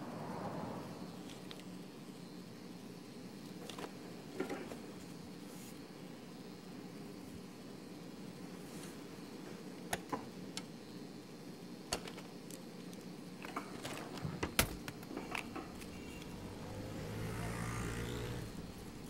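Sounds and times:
low room hum: 0.0 - 19.0.

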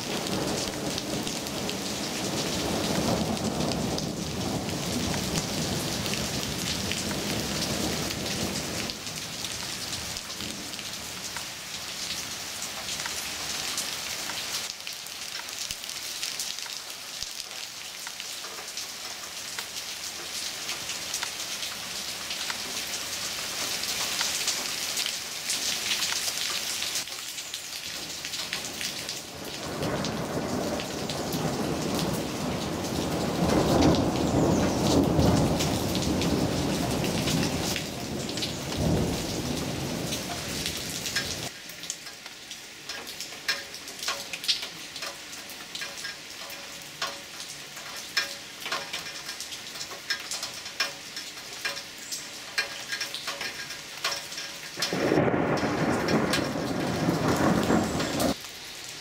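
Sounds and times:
low thunder rumble: 0.0 - 11.2, 29.3 - 41.5, 54.8 - 58.4
heavy rain on leaves: 0.0 - 59.0.

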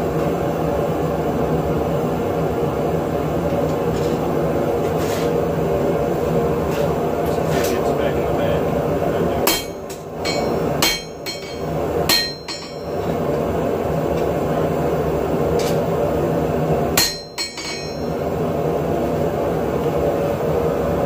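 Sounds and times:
propane forge roaring: 0.0 - 21.0
hammer striking steel on anvil: 9.4 - 13.1, 17.0 - 18.2.

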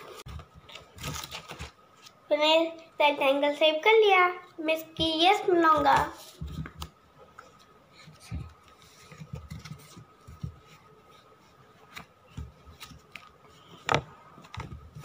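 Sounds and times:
paper rustling and folding: 0.0 - 2.2, 5.6 - 15.0.

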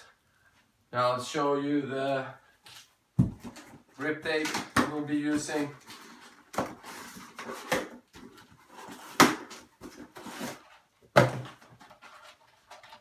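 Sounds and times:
cardboard rustling and scraping: 5.3 - 13.0.

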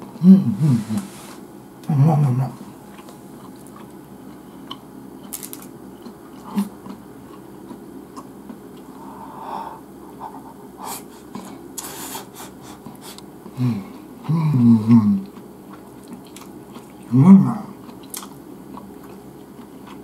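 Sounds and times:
person humming: 0.1 - 2.6, 13.6 - 15.3, 17.1 - 17.7
chewing: 2.8 - 9.2, 15.2 - 20.0
breathing through nose: 10.8 - 13.8.

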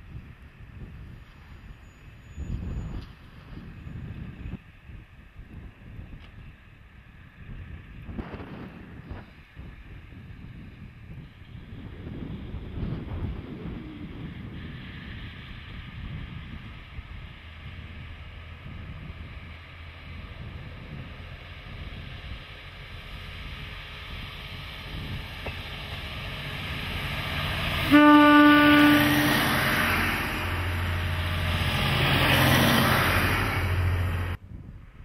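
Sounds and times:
diesel train passing: 0.0 - 35.0
train horn blast: 27.8 - 29.6.

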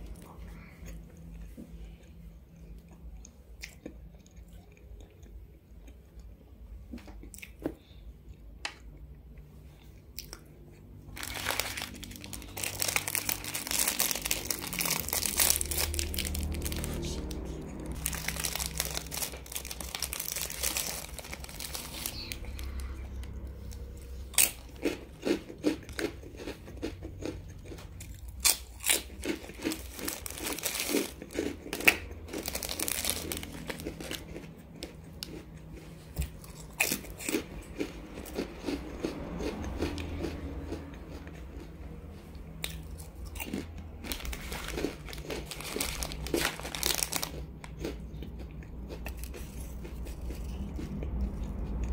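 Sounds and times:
crunching and chewing crackers: 0.0 - 51.9
plastic wrappers crinkling: 11.1 - 24.7, 28.4 - 35.0, 44.0 - 47.9.

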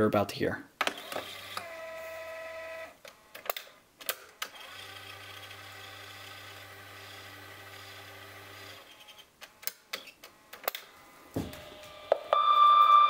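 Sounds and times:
loud electronic beep: 12.3 - 13.0.

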